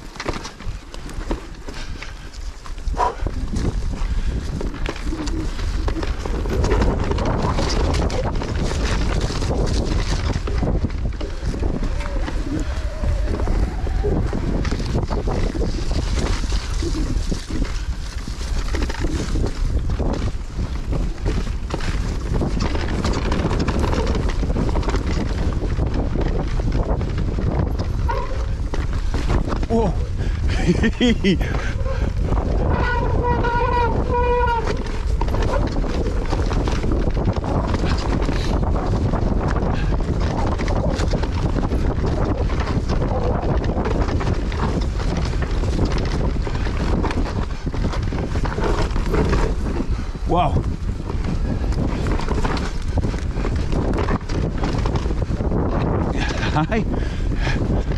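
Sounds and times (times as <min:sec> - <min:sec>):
bike clicks and rattles: 0:00.0 - 0:57.9
tyres rumbling on dirt: 0:00.0 - 0:57.9
wind buffeting microphone: 0:00.0 - 0:57.9.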